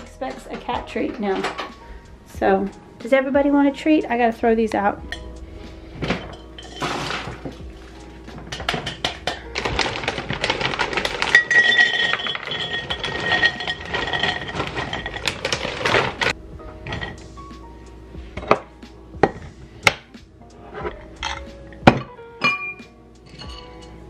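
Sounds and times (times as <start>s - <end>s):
dog biscuits pouring into ceramic: 9.6s - 16.3s.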